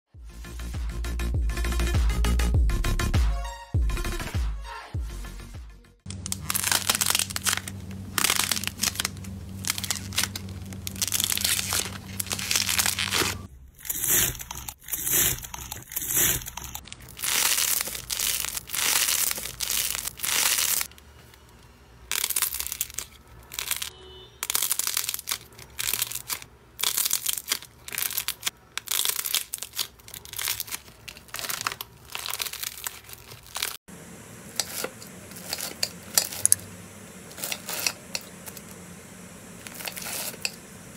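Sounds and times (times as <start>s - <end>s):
slime crackling and crinkling: 6.1s - 33.8s, 34.6s - 36.6s, 39.5s - 40.6s.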